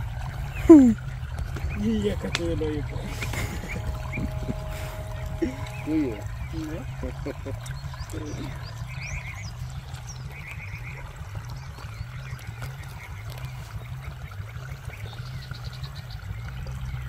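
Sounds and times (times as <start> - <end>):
hose water gurgling: 0.0 - 17.0
short high trills: 1.9 - 8.8.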